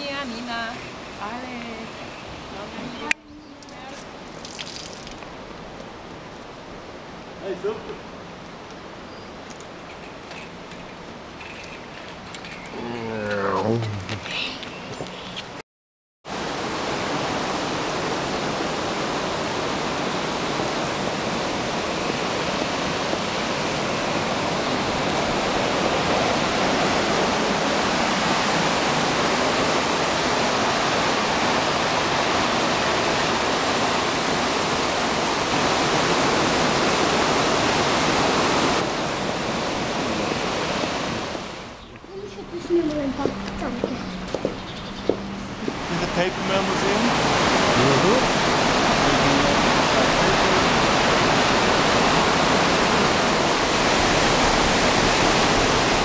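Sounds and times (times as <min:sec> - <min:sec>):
water rushing over weir: 0:16.3 - 0:44.5, 0:45.1 - 0:56.0.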